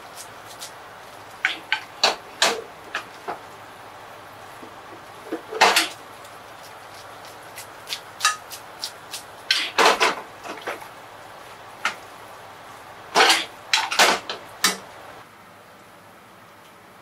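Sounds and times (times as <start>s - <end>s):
tongs clattering on frying pan: 5.5s - 6.0s, 8.2s - 8.5s, 9.5s - 10.8s, 13.2s - 14.8s.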